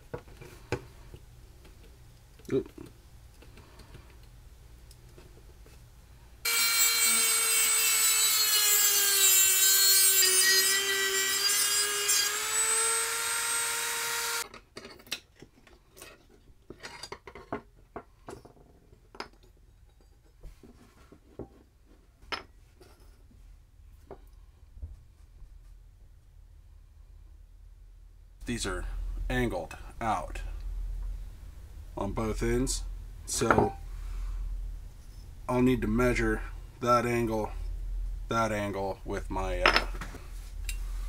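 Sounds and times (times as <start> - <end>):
rotary tool cutting metal: 6.5 - 14.4.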